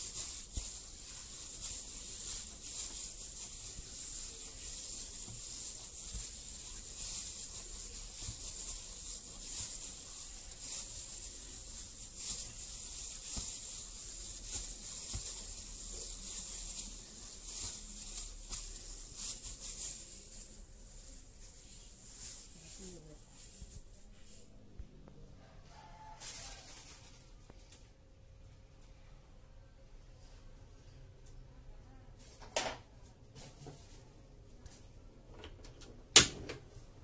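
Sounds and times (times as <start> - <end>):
gloved hand kneading dough in bowl: 0.0 - 24.1.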